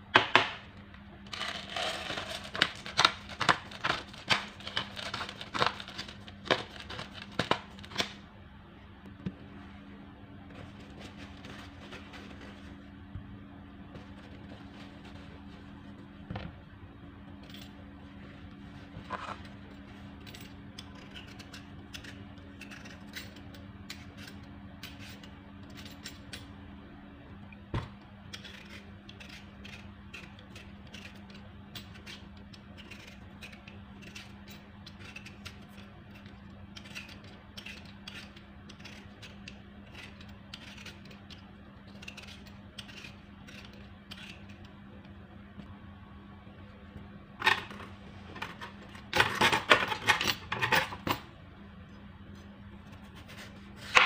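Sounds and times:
peeler scraping potato skin: 0:28.3 - 0:44.7.

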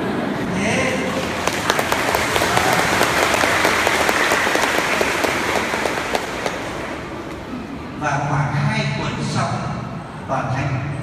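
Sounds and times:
audience clapping: 0:01.0 - 0:07.5.

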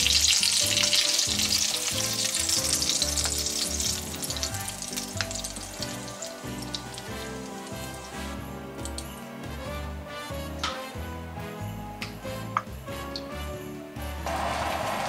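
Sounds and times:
patties sizzling in a frying pan: 0:00.0 - 0:08.9
background music with steady beat: 0:00.0 - 0:15.0.

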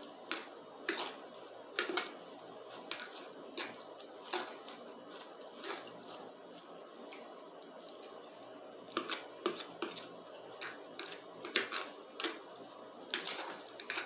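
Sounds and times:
person chewing spaghetti: 0:00.2 - 0:08.2.

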